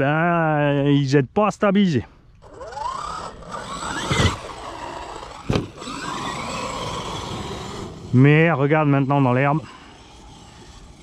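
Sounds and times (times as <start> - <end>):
rc truck motor whining: 2.4 - 11.0
thump: 5.5 - 5.8.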